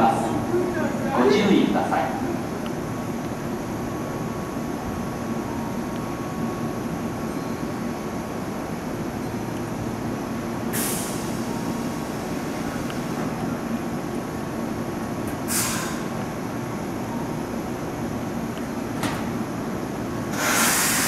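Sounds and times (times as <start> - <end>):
train equipment humming: 0.0 - 21.0
compressed air hissing: 15.5 - 16.1, 20.3 - 21.0.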